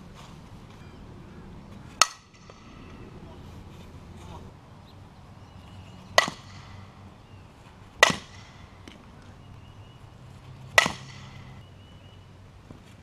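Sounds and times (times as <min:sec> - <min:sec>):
bat striking softballs with ping: 0:01.9 - 0:03.2, 0:06.1 - 0:07.0, 0:07.9 - 0:09.5, 0:10.3 - 0:11.6.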